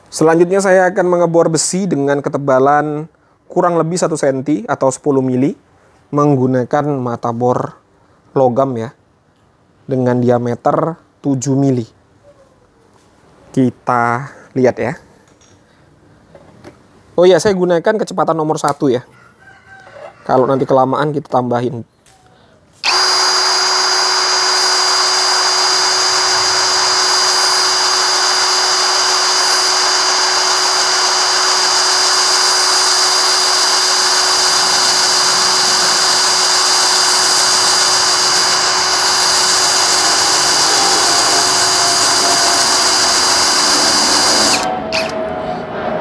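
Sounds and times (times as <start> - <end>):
drill bit cutting into steel: 22.8 - 45.2.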